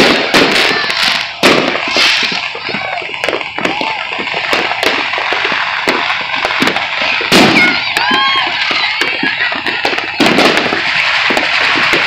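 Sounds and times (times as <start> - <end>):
firecrackers crackling: 0.0 - 12.0
loud firework bang: 0.0 - 12.0.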